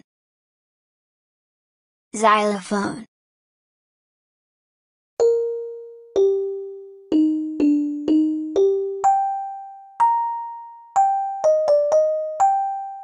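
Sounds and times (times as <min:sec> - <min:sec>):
xylophone melody: 0:05.2 - 0:13.0.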